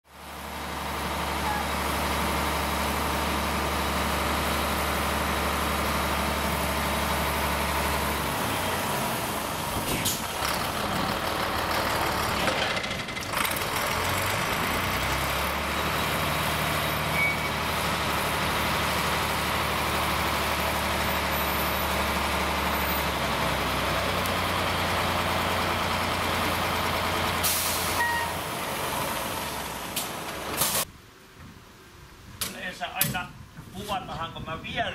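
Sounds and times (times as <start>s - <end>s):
truck engine running: 0.1s - 30.9s
short hydraulic hiss: 27.4s - 28.3s, 30.6s - 30.9s.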